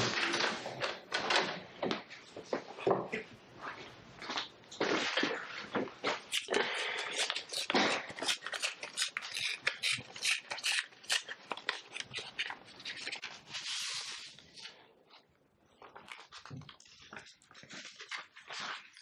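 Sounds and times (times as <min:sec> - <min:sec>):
paper envelope crinkling: 0:07.2 - 0:14.8
paper sheets rustling: 0:11.7 - 0:14.8.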